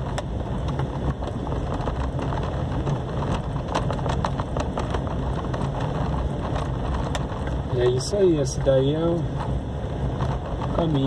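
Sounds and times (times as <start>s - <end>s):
small clicks and knocks: 0.0s - 8.0s
car engine and tyre noise: 0.0s - 11.0s.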